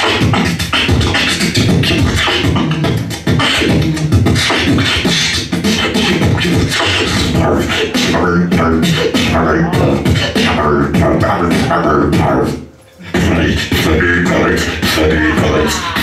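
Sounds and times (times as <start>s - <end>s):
person beatboxing into microphone: 0.0s - 16.0s.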